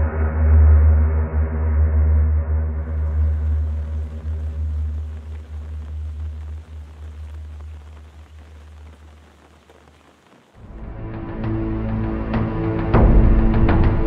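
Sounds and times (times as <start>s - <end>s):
faint hiss: 2.8s - 10.9s.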